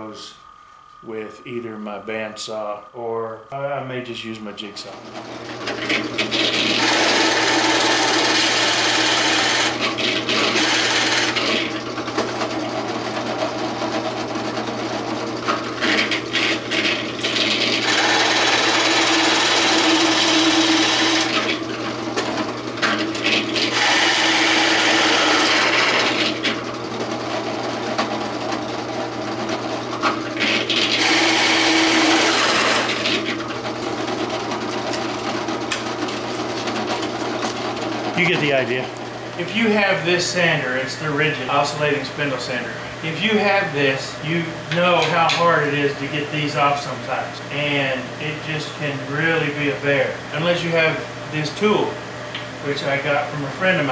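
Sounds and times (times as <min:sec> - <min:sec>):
drill press motor hum: 0:04.9 - 0:46.2
drill press boring into wood: 0:05.2 - 0:39.0.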